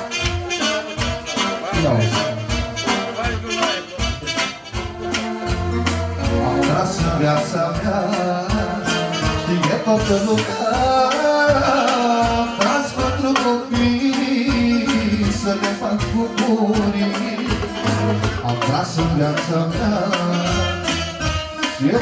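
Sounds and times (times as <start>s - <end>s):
party band music: 0.0s - 22.0s
steady drum beat: 0.0s - 22.0s
man singing into microphone: 6.2s - 22.0s.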